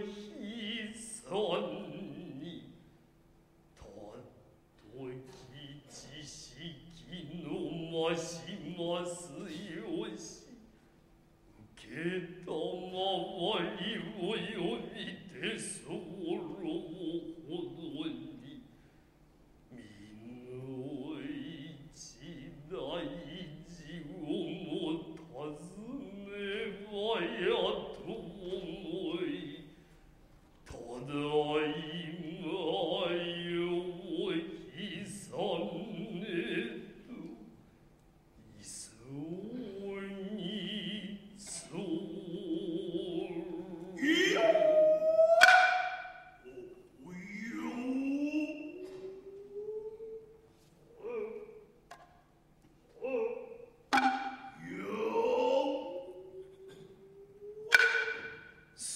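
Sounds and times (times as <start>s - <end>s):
man chanting: 0.0s - 3.0s, 3.8s - 10.7s, 11.5s - 18.7s, 19.7s - 29.8s, 30.6s - 37.6s, 38.4s - 51.8s, 52.9s - 58.9s
rising vocal call: 41.8s - 51.7s, 52.9s - 58.6s
sharp drum stroke: 53.9s - 54.6s.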